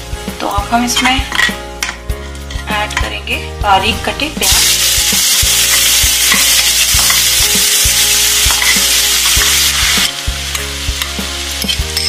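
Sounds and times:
onions sizzling in hot oil: 4.4s - 12.0s.

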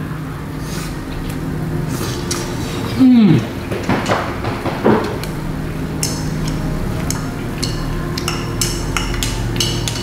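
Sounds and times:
steady low hum: 0.0s - 10.0s
chopsticks clinking on metal: 6.0s - 10.0s.

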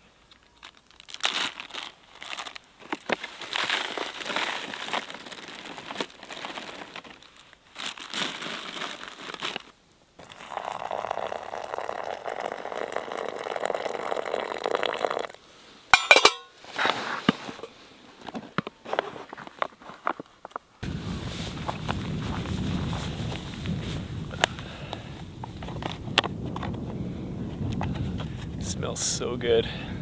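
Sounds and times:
paper pouch crinkling: 0.4s - 14.7s
water pouring into pouch: 10.2s - 15.4s
metal mug clinking down: 16.0s - 16.5s.

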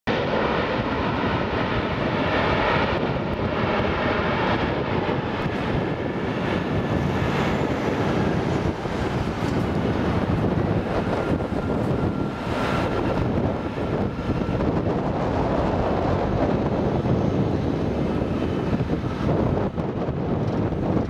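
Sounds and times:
faint jet engine whine: 0.1s - 21.0s
jet engines rushing: 0.1s - 21.0s.

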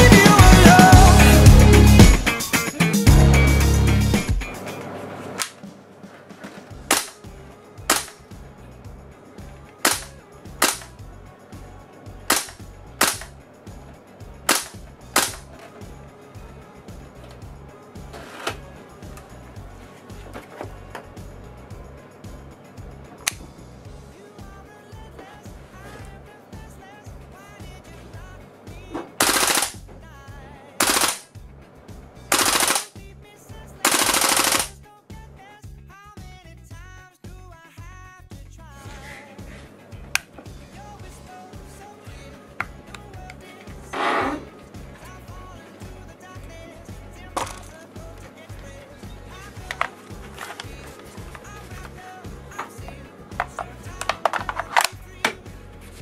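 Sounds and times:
airsoft rifle shots: 6.9s - 7.3s, 7.9s - 8.2s, 9.8s - 10.9s, 12.3s - 13.3s, 14.5s - 15.4s, 29.2s - 29.8s, 30.8s - 31.3s, 32.3s - 33.0s, 33.9s - 34.8s.

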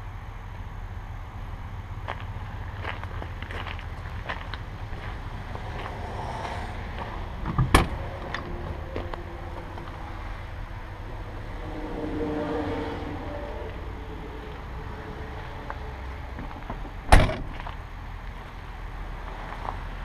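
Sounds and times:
steady low rumble: 0.0s - 20.0s
truck door latch click: 17.1s - 17.5s.

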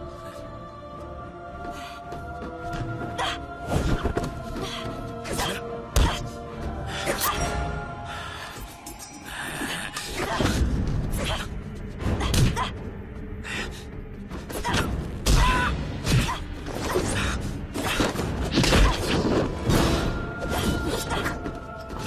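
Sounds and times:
dramatic film score: 0.0s - 22.0s.

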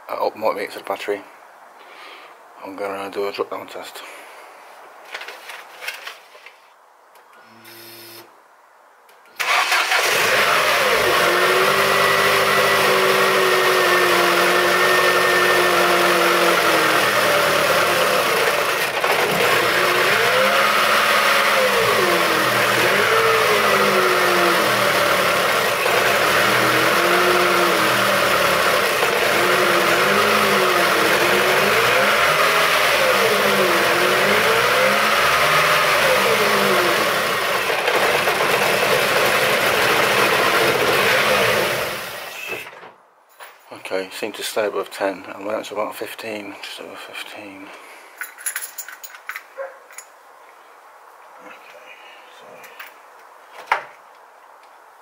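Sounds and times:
car engine starting and revving: 9.4s - 42.8s.

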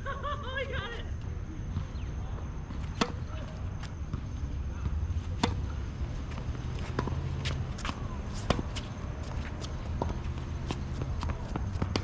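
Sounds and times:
rackets striking tennis ball: 2.6s - 12.0s
quick footsteps and shoe scuffs: 6.2s - 12.0s.

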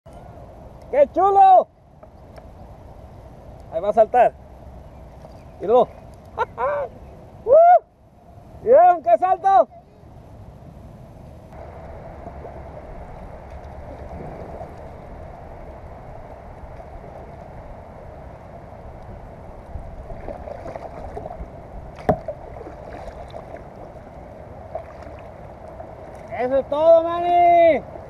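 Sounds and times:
steady low rumble: 0.1s - 26.8s
paddle strokes splashing: 11.6s - 17.8s, 18.8s - 26.4s.

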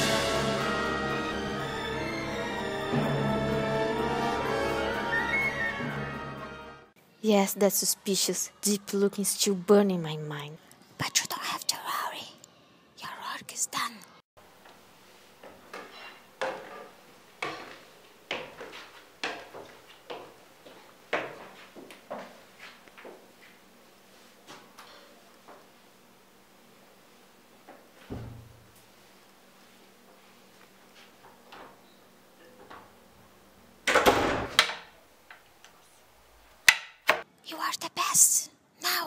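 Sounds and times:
footsteps climbing stairs: 15.4s - 23.6s
wooden door swinging shut: 33.9s - 34.9s.

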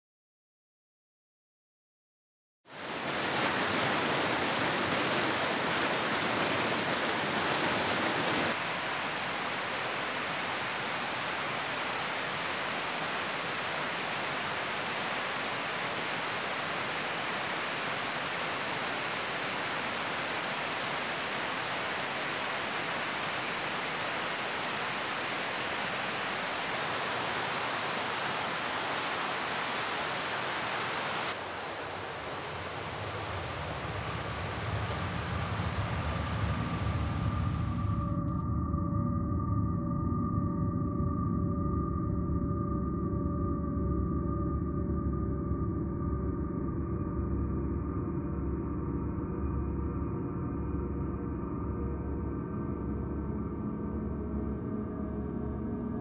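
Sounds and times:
rushing river water: 2.7s - 37.8s.

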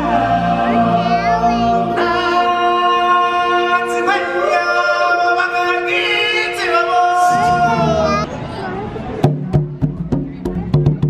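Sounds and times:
choir singing sustained notes: 0.0s - 8.4s.

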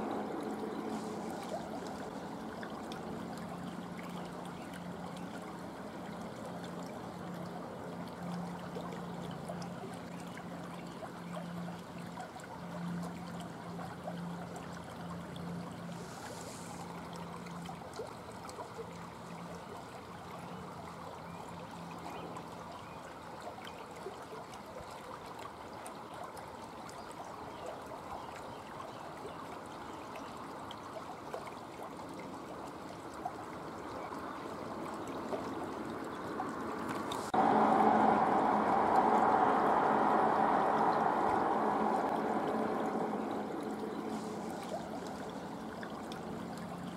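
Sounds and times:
garden waterfall splashing into pond: 29.2s - 46.9s.

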